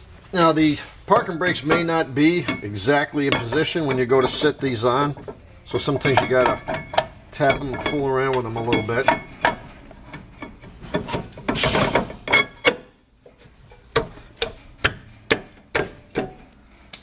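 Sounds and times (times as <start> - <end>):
brake rotor scraping: 0.8 - 15.3
palms slapping metal rotor: 1.4 - 13.0.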